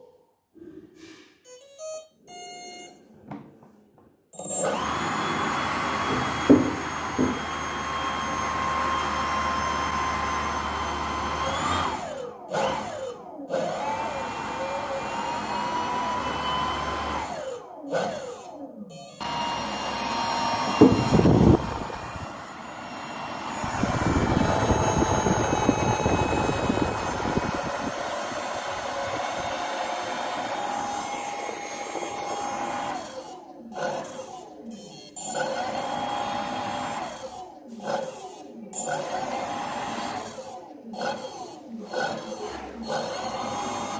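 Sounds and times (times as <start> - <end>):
electric fan whining: 19.2 - 33.1.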